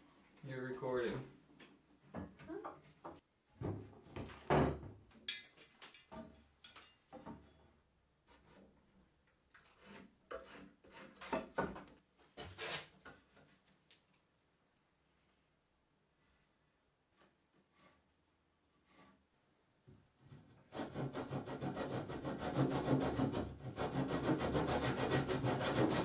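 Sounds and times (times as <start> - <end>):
metal square scraping wood: 9.6 - 11.6.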